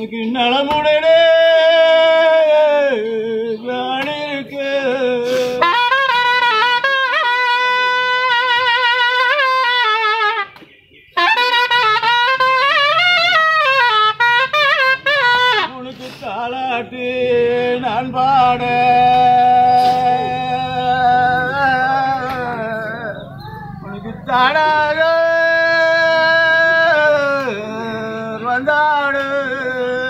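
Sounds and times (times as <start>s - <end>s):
reed wind instrument melody: 5.2s - 16.4s.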